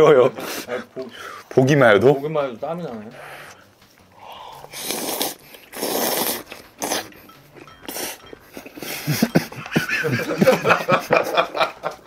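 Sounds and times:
man slurping noodles: 4.4 - 7.2.

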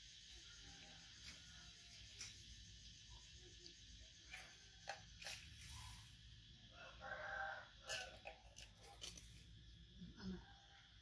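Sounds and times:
rooster crowing: 6.6 - 8.2.

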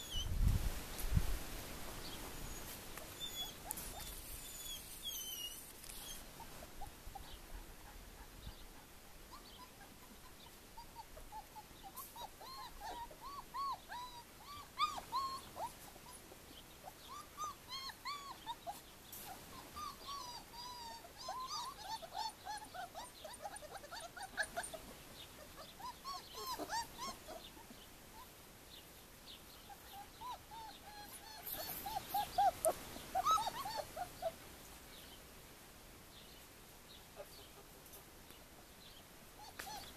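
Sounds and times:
puppies whimpering: 0.0 - 0.3, 2.3 - 28.3, 29.7 - 34.4, 39.4 - 39.9.

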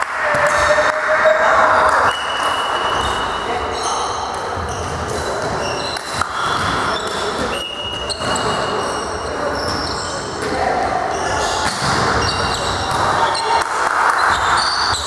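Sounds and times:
voices: 0.0 - 15.0
high squeaks: 1.4 - 10.3, 11.1 - 13.6.

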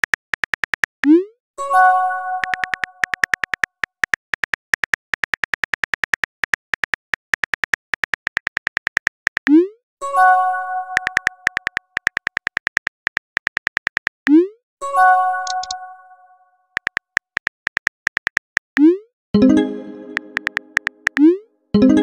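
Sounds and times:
keyboard typing clicks: 0.0 - 1.3, 2.4 - 9.7, 10.9 - 14.5, 15.4 - 15.8, 16.8 - 21.4.

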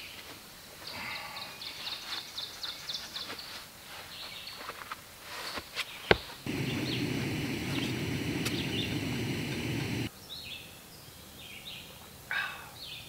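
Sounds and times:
small birds chirping: 0.8 - 4.8, 5.9 - 10.7
steady background noise: 6.3 - 10.1.

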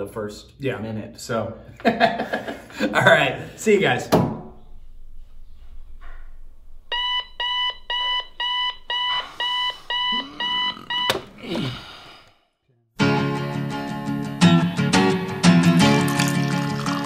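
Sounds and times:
high electronic alarm beeps: 6.9 - 11.3
alarm switch click: 6.9 - 11.4.

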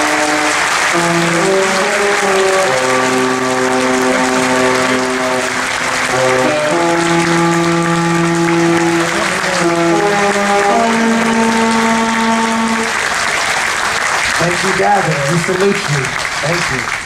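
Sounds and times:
slow music with held chords: 0.0 - 13.0
audience applauding: 0.0 - 17.0.

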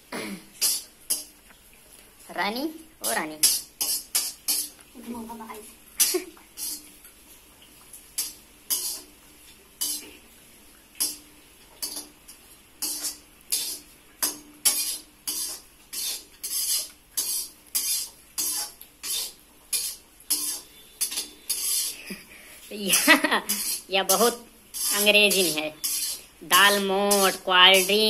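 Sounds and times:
metal spatula scraping a wok: 0.6 - 1.3, 3.3 - 4.8, 6.0 - 6.9, 8.2 - 9.2, 9.8 - 10.3, 11.0 - 28.0.

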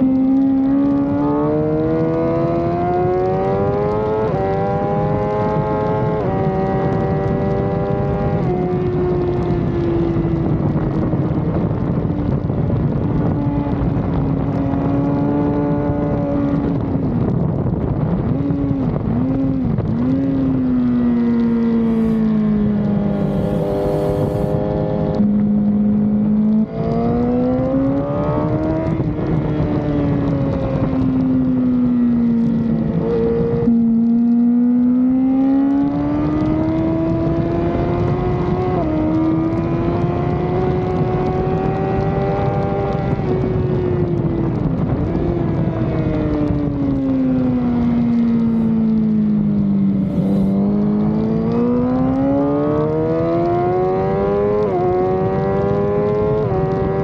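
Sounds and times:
motorcycle engine revving: 0.0 - 10.0, 18.2 - 45.4, 46.0 - 57.0
wind rush: 5.3 - 25.7, 36.0 - 52.8.

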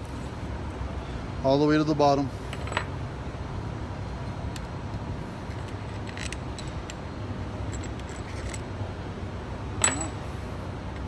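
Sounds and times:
metal parts clinking: 5.5 - 7.0, 7.7 - 8.7, 9.8 - 10.2.

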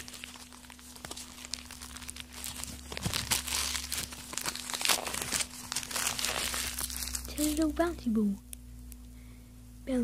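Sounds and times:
wrapping paper crinkling and tearing: 0.0 - 7.9.

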